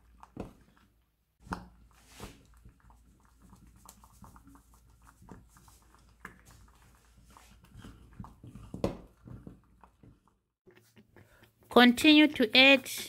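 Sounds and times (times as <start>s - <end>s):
wooden spoon scraping pot: 1.8s - 11.7s.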